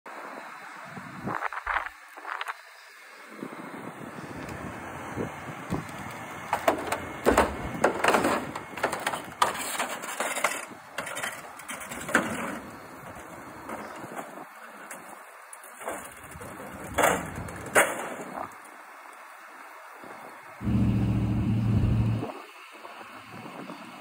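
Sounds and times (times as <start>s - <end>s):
truck crunching through snow: 20.6s - 22.2s.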